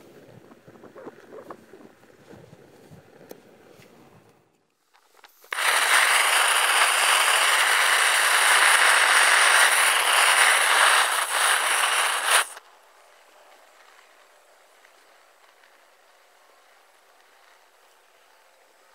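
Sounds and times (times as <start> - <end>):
torch flame rushing hiss: 5.4 - 12.6.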